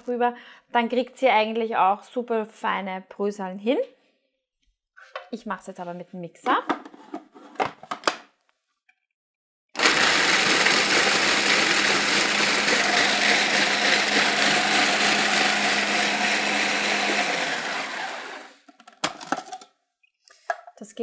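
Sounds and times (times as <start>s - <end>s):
food processor motor grinding: 9.8s - 18.7s.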